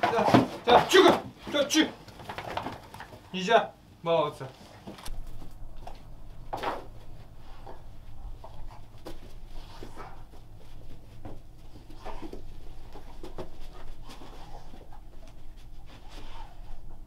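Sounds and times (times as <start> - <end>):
dogs knocking and scuffling: 0.0 - 3.3, 4.8 - 17.0
dogs snuffling: 4.6 - 17.0
low steady hum: 5.0 - 17.0.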